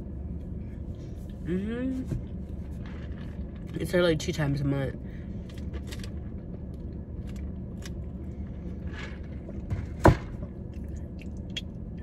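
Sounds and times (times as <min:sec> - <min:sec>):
low background hum: 0:00.0 - 0:12.0
quiet eating noises: 0:10.6 - 0:12.0.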